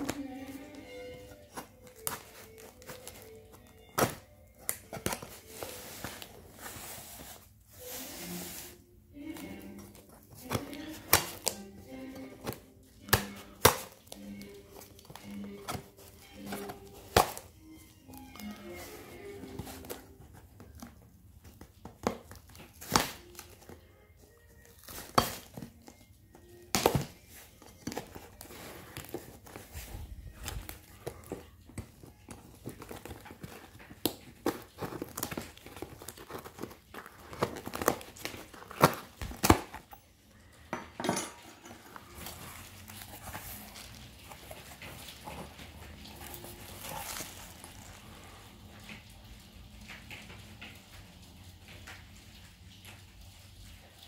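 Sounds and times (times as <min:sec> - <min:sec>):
cardboard flaps crinkling: 0:00.0 - 0:17.6, 0:18.4 - 0:40.0, 0:41.9 - 0:48.2.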